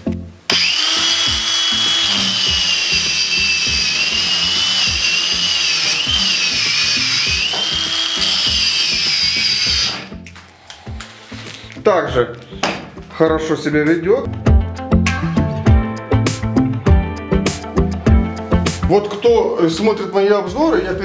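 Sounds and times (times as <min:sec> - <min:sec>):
angle grinder motor whining: 0:00.5 - 0:11.2.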